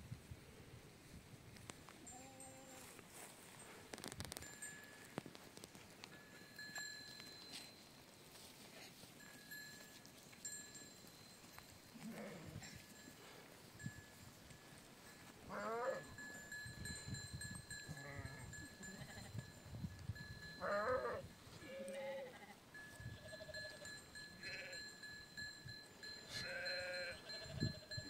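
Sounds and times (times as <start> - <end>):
sheep bleating: 15.5 - 16.1, 26.3 - 27.5.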